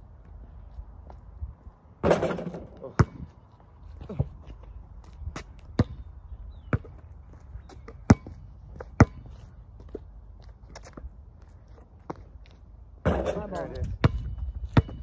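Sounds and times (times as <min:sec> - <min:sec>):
basketball bouncing on concrete: 0:02.0 - 0:03.4, 0:05.3 - 0:07.0, 0:07.7 - 0:10.0, 0:13.0 - 0:15.0.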